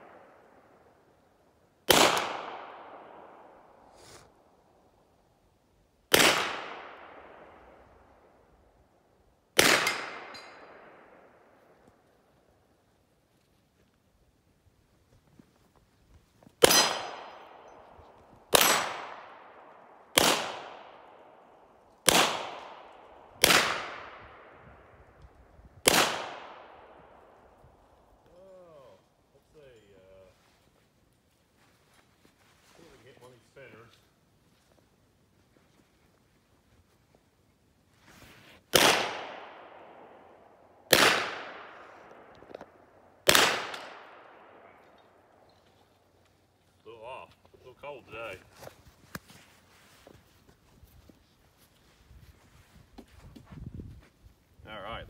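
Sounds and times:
pistol shots: 0:01.9 - 0:03.5, 0:06.1 - 0:07.5, 0:09.6 - 0:11.3, 0:16.6 - 0:17.9, 0:18.5 - 0:21.2, 0:22.0 - 0:24.6, 0:25.8 - 0:27.2, 0:38.7 - 0:40.2, 0:40.9 - 0:42.3, 0:43.2 - 0:45.0.

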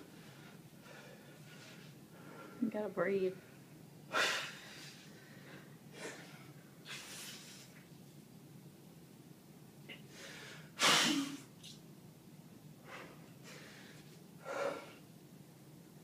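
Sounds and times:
man huffing breaths: 0:12.8 - 0:15.0.

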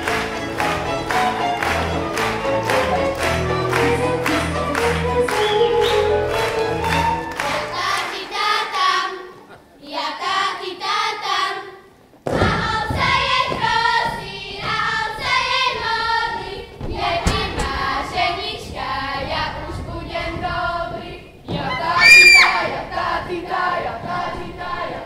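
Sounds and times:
girls' choir singing in unison: 0:02.6 - 0:25.0
loud high whoop: 0:22.0 - 0:22.7.

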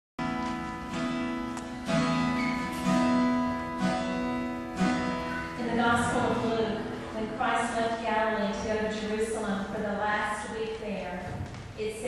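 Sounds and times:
slow instrumental chords: 0:00.2 - 0:07.4.

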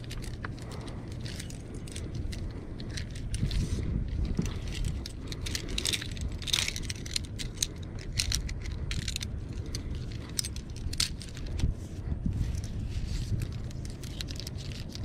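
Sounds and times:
metal blocks and shackles clinking: 0:00.0 - 0:11.7, 0:12.4 - 0:15.0
steady low rumble: 0:00.0 - 0:15.0.

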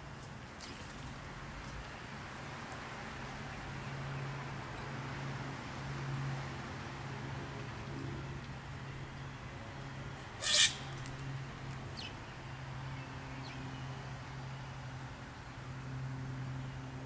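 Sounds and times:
harsh bird call: 0:10.4 - 0:10.9.

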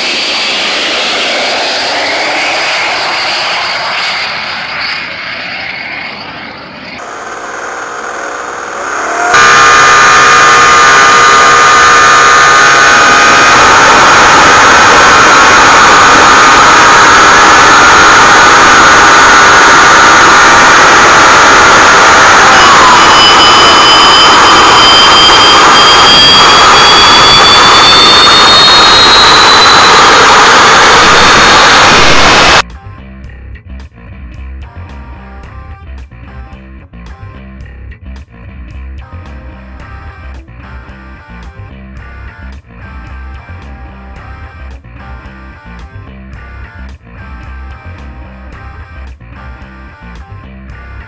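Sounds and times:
jet engine roaring: 0:00.0 - 0:32.6
high engine whine: 0:00.0 - 0:32.7.

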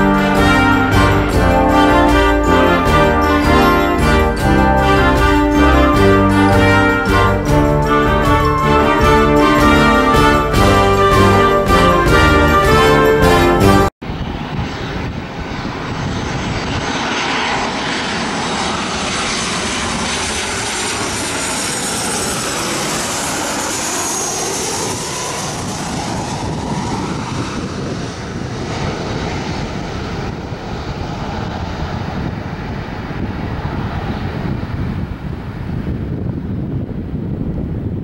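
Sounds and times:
high fan whine: 0:14.0 - 0:38.0
jet engine rumble and hiss: 0:14.0 - 0:38.0.

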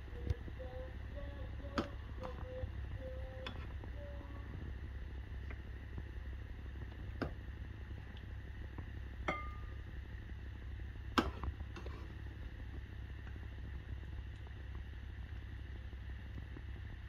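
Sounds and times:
steady low hum: 0:00.0 - 0:17.0
metal spoon clinking on pan: 0:09.3 - 0:09.7.

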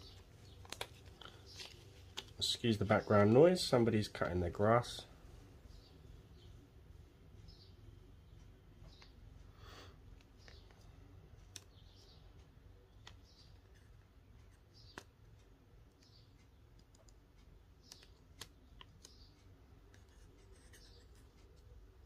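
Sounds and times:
plastic packet clicks: 0:00.5 - 0:02.4.

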